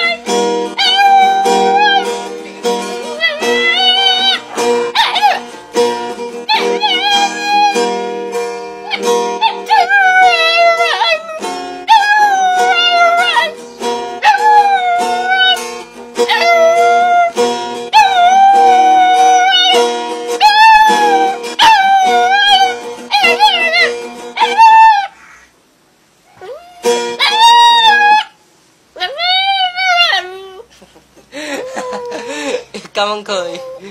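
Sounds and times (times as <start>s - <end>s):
dog howling: 0.0s - 2.3s, 3.0s - 5.5s, 6.5s - 7.9s, 8.8s - 13.6s, 14.2s - 15.6s, 16.2s - 19.8s, 20.4s - 25.2s, 26.3s - 28.4s, 29.0s - 30.7s, 31.5s - 32.4s
strummed acoustic guitar: 0.0s - 24.8s, 26.8s - 28.2s.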